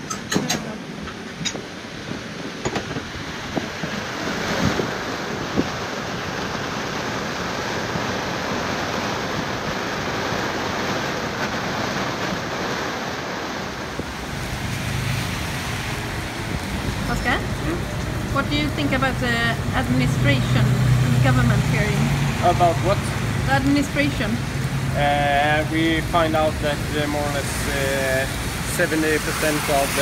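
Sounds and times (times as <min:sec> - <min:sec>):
heavy rain and wind: 0:00.0 - 0:30.0
traffic on a wet road: 0:00.0 - 0:30.0
knocks on a boat: 0:02.6 - 0:03.7.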